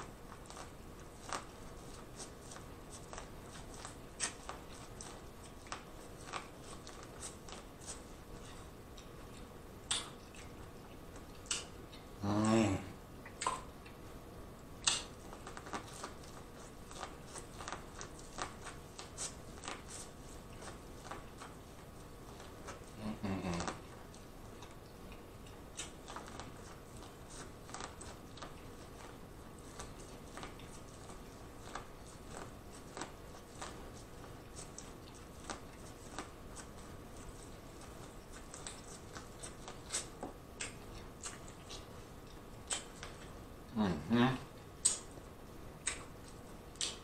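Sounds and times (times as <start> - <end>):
crunching and chewing corn: 0.0 - 12.1, 14.8 - 43.4, 44.8 - 47.0
low vocal hum: 12.2 - 13.0, 22.9 - 24.0, 43.7 - 44.6.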